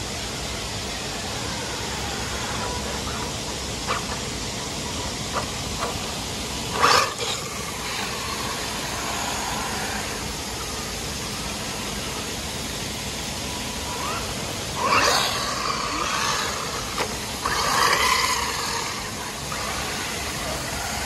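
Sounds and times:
fountain water hissing: 0:00.0 - 0:21.0.

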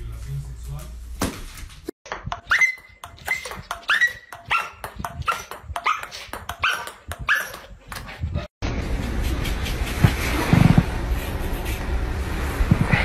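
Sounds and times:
ping-pong ball bouncing on table: 0:02.1 - 0:07.6
dog barking in high yips: 0:02.4 - 0:07.7.

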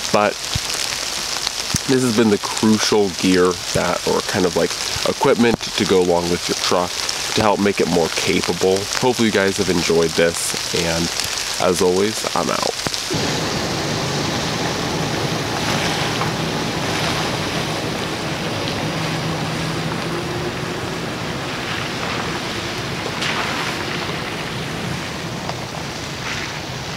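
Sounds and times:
tyres on gravel: 0:00.4 - 0:26.9
truck engine running: 0:13.1 - 0:26.1.

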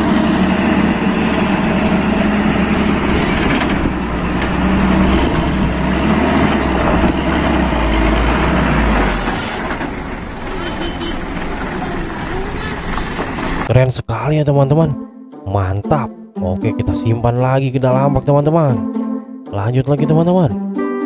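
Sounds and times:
truck diesel engine rumble: 0:00.0 - 0:13.7.

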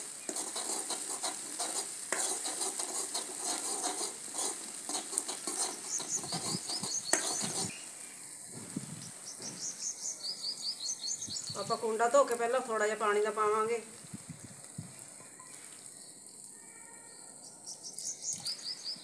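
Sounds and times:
spices sizzling in oil: 0:00.0 - 0:19.0
metal spoon scraping pan: 0:00.2 - 0:07.7
bird chirping: 0:04.9 - 0:08.3, 0:08.9 - 0:12.0, 0:15.0 - 0:19.0.

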